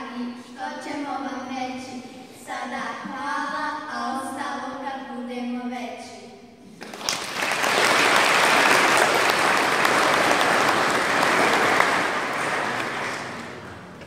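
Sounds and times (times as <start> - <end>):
congregation clapping: 6.8 - 14.0.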